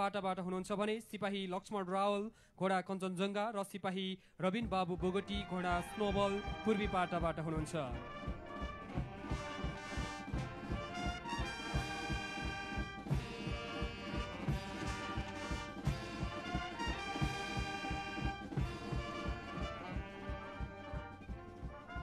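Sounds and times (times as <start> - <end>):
brass band music: 5.0 - 22.0.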